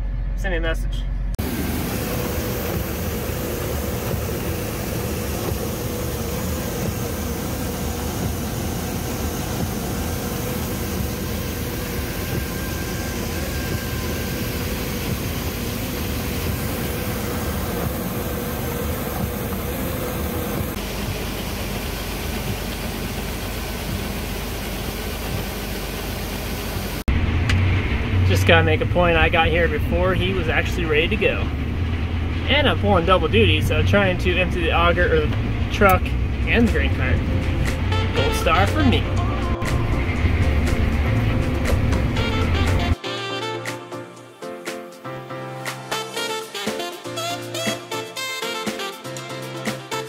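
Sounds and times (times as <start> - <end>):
steady mechanical whine: 0.0 - 43.0
tractor engine running: 0.0 - 43.0
grain auger running: 1.4 - 27.1.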